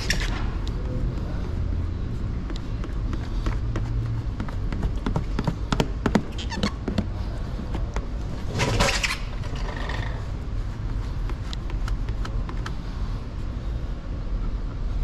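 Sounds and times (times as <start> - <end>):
steady low hum: 0.0 - 15.0
squeegee squeaks: 6.3 - 7.0
squeegee taps and clicks: 11.2 - 12.8.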